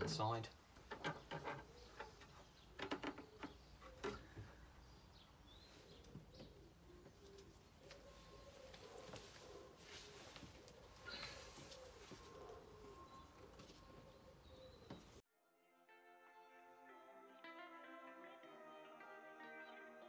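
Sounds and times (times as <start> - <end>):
bird cooing: 5.5 - 15.2.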